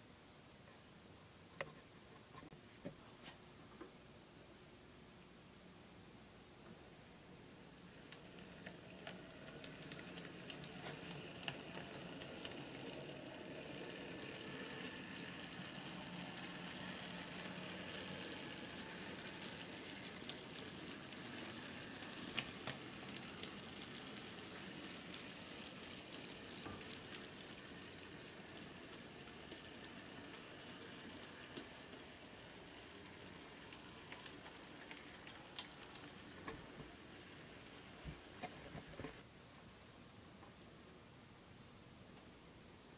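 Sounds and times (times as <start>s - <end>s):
model train wheels rattling: 8.1s - 36.7s.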